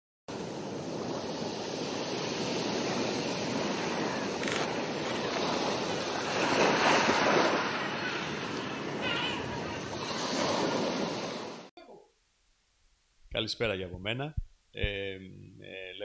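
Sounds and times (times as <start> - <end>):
sea waves washing on shore: 0.3 - 11.7.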